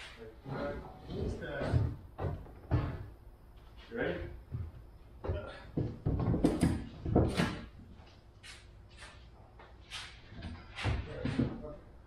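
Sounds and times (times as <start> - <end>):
car body clunking and creaking: 0.6 - 3.2.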